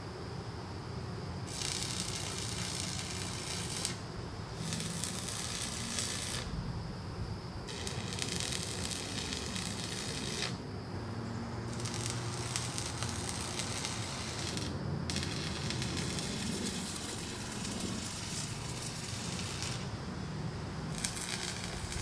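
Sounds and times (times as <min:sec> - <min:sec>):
welding arc crackling: 0:01.5 - 0:06.5, 0:07.7 - 0:10.6, 0:11.7 - 0:19.9, 0:20.9 - 0:22.0.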